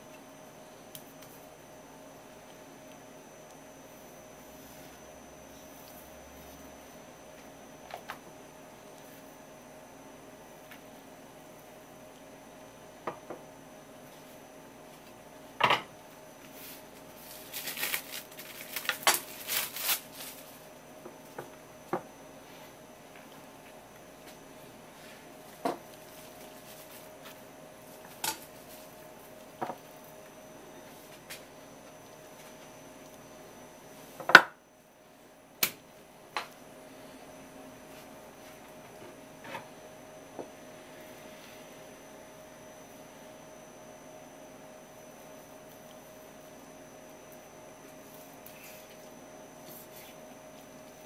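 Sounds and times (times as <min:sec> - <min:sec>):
faint steady hum: 0:00.0 - 0:51.0.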